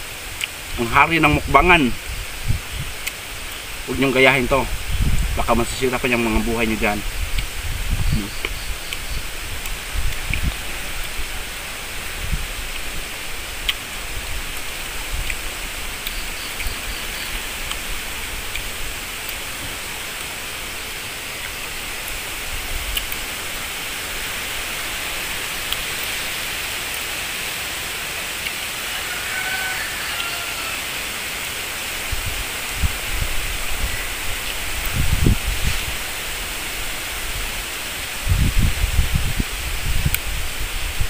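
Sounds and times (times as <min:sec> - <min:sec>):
rushing outdoor hiss: 0:00.0 - 0:41.0
wind rumble on microphone: 0:00.7 - 0:19.8, 0:32.0 - 0:41.0.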